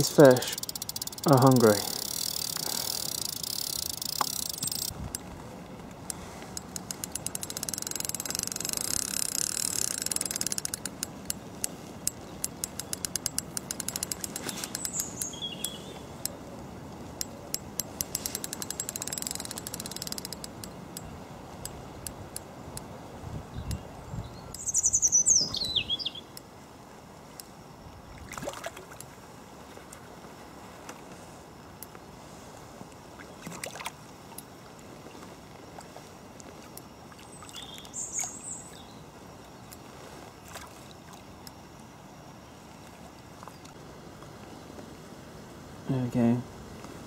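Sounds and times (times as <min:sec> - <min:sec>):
fishing reel ticking: 0:00.0 - 0:05.3, 0:05.9 - 0:22.9
birds chirping: 0:14.2 - 0:16.2, 0:23.6 - 0:26.3, 0:37.2 - 0:39.1.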